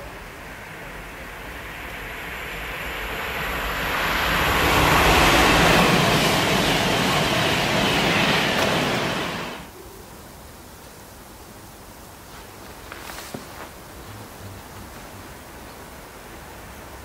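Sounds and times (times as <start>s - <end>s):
train rushing past: 0.0s - 9.7s.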